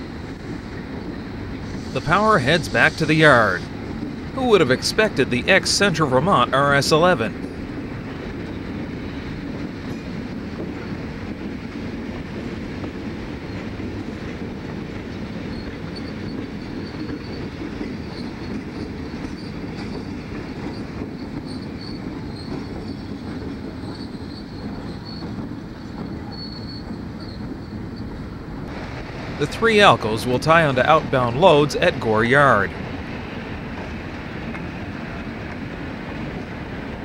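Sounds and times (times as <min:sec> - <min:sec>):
diesel locomotives rumbling: 0:00.0 - 0:37.0
high-pitched wheel squeals: 0:23.9 - 0:27.8.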